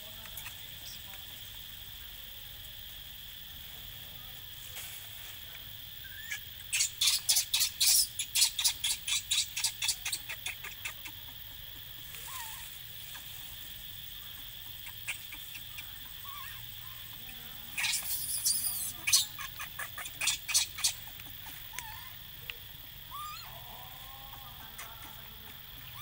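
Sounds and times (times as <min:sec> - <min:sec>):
high insect drone: 0:00.0 - 0:26.0
baby monkey squealing: 0:06.0 - 0:11.2, 0:12.2 - 0:13.3, 0:14.7 - 0:17.1, 0:17.7 - 0:22.2, 0:23.1 - 0:23.6, 0:25.8 - 0:26.0.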